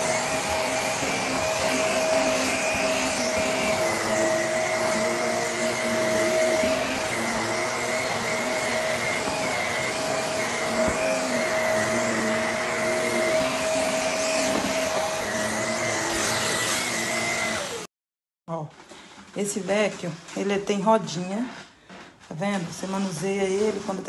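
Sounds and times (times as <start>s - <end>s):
upright vacuum cleaner running: 0.0s - 17.9s.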